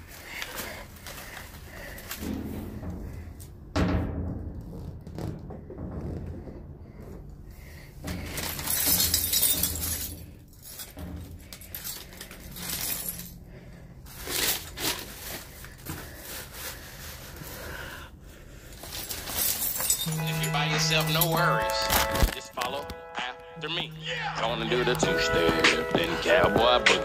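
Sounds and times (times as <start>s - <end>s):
sharp clattering hits: 2.0s - 13.3s
glass clinking and breaking: 8.2s - 13.4s, 19.0s - 22.8s.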